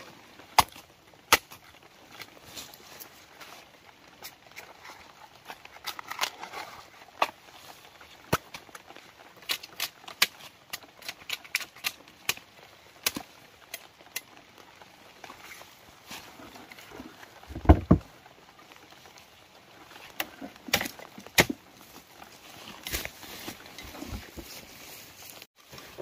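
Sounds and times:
machete chopping bamboo: 0.6s - 1.6s, 9.4s - 12.4s, 20.7s - 21.6s.

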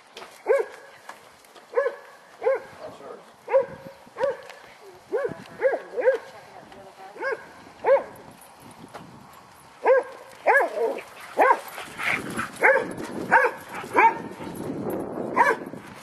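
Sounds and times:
dog barking: 0.4s - 0.9s, 1.7s - 2.8s, 3.5s - 6.3s, 7.2s - 8.2s, 9.8s - 11.7s, 12.6s - 14.3s, 15.4s - 15.7s.

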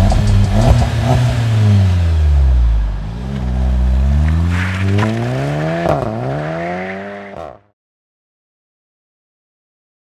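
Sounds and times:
car engine revving: 0.0s - 7.7s.

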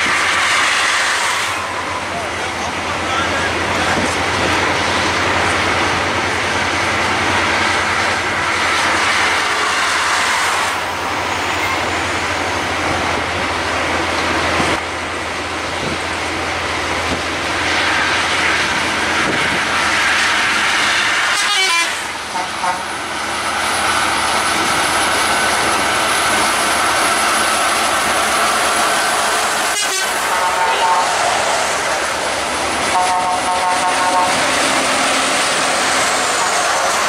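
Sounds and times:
highway traffic noise: 0.0s - 37.0s.

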